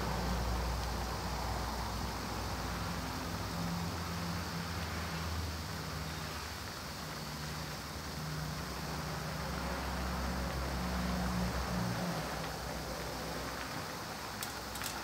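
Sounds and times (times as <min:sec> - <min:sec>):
liquid boiling in a pan: 0:00.0 - 0:15.0.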